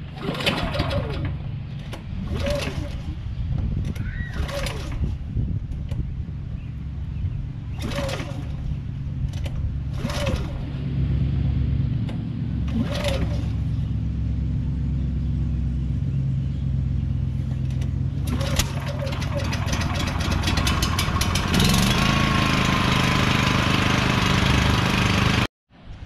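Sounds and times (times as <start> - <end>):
generator engine running: 0.0 - 25.5.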